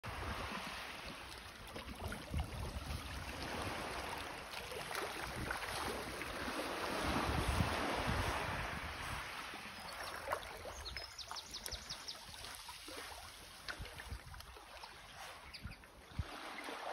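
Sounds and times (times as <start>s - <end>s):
water lapping and splashing: 0.0s - 16.9s
wind rumbling on microphone: 1.9s - 4.2s, 5.0s - 9.8s.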